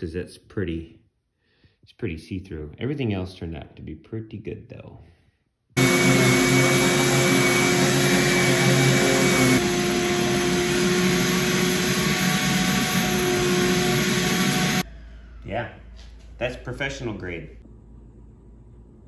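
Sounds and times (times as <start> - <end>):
orbital sander whirring: 5.8 - 14.9
vacuum running: 5.8 - 16.4.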